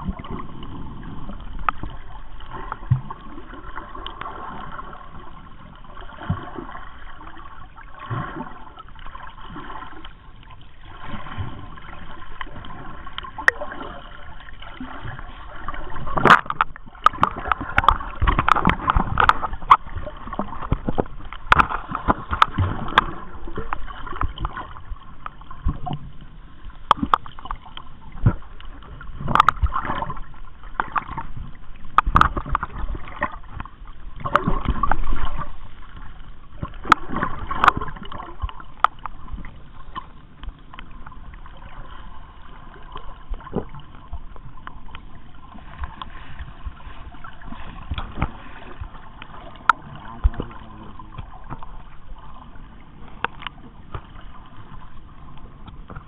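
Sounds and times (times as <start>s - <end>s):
sea water sloshing and gurgling: 0.0s - 56.0s
knocks and splashes: 10.9s - 26.1s, 26.8s - 54.9s.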